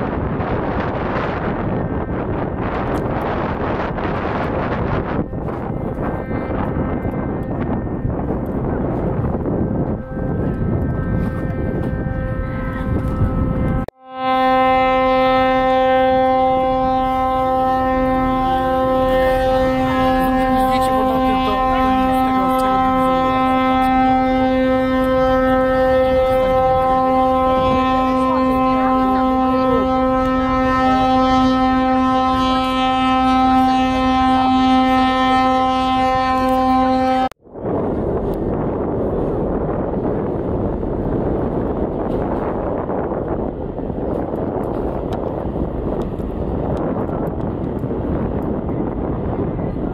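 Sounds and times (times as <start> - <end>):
ship's horn blast: 0.0 - 49.9.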